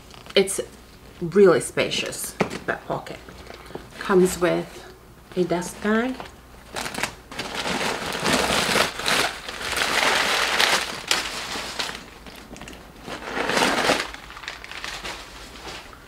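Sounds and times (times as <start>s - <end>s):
fabric bag rustling and crinkling: 5.6s - 16.0s.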